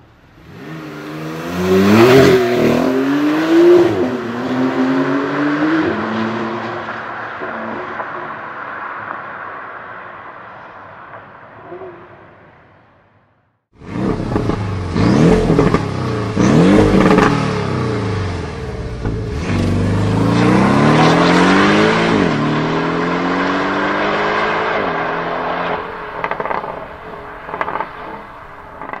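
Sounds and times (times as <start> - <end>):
sports car engine revving: 0.4 - 6.7, 13.8 - 28.2.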